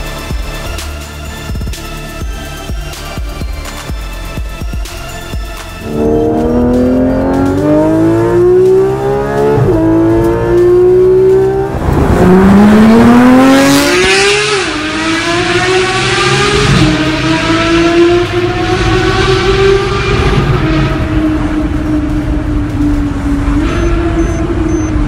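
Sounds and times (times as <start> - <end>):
car engine accelerating hard: 5.8 - 25.0.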